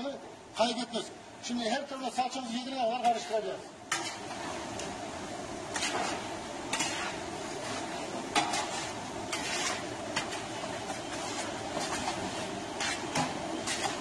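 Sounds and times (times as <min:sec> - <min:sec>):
metal spatula scraping pan: 0:03.9 - 0:04.6, 0:05.7 - 0:14.0
frying sizzle: 0:03.9 - 0:14.0.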